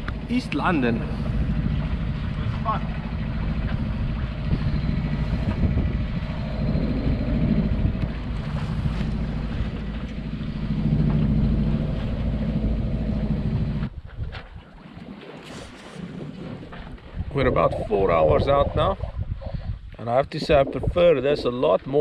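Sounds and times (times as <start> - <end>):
boat engine running: 0.0 - 22.0
water noise: 0.0 - 22.0
wind: 0.0 - 22.0.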